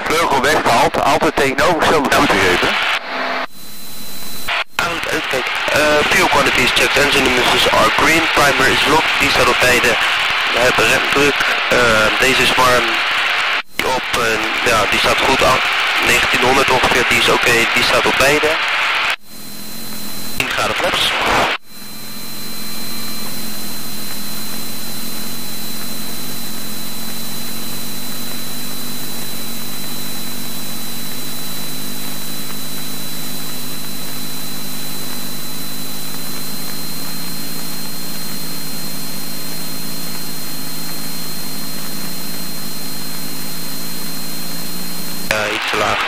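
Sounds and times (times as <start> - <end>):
thin high whine: 0.0 - 46.0
propeller plane engine droning: 21.6 - 45.4.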